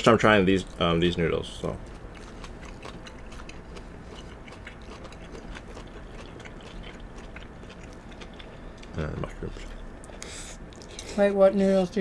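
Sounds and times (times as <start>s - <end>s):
chewing and slurping noodles: 1.8s - 11.2s.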